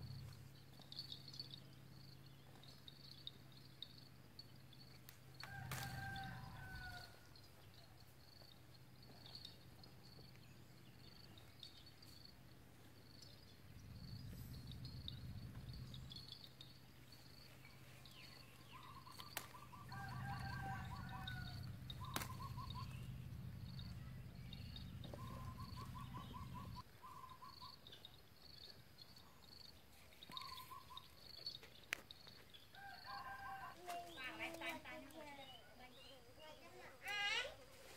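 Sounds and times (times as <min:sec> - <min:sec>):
faint high chirps: 0:13.0 - 0:33.4
low rumble: 0:13.6 - 0:16.4
birds trilling: 0:13.8 - 0:27.9, 0:30.3 - 0:31.6.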